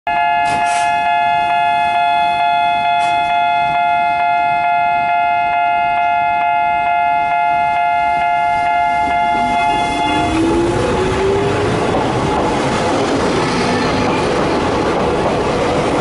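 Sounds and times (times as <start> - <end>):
station departure bell ringing: 0.1 - 11.7.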